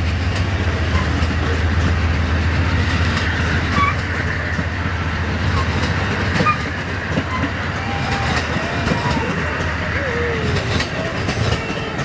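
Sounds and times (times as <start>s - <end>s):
train wheels clicking over rail joints: 0.0s - 12.0s.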